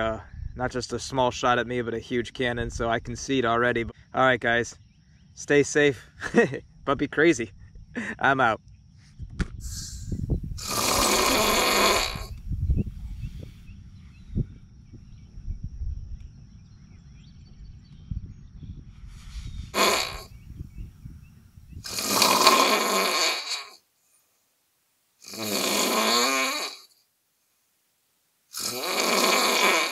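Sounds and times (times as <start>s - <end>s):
loud snoring: 10.6s - 12.4s, 19.7s - 20.3s, 21.8s - 23.8s, 25.2s - 26.9s, 28.5s - 29.9s
low rumble: 12.3s - 19.7s.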